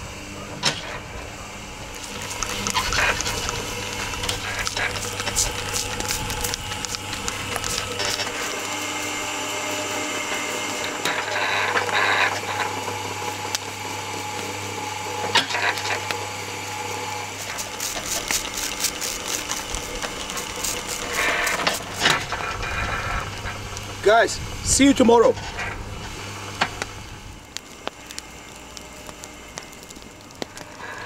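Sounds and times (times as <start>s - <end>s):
burning logs crackling: 0.0s - 31.0s
electric spit motor humming: 0.0s - 31.0s
spray bottle squirts: 4.6s - 7.8s, 17.5s - 22.0s.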